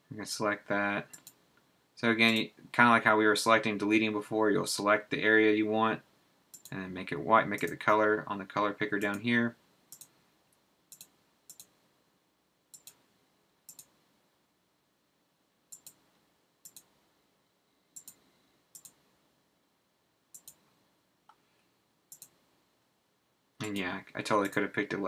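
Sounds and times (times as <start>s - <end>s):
mouse buttons clicking: 9.9s - 10.1s, 10.9s - 11.7s, 12.7s - 13.0s, 13.7s - 13.9s, 15.7s - 16.0s, 16.6s - 16.9s, 18.0s - 18.2s, 18.8s - 19.0s, 20.4s - 20.6s, 22.1s - 22.4s.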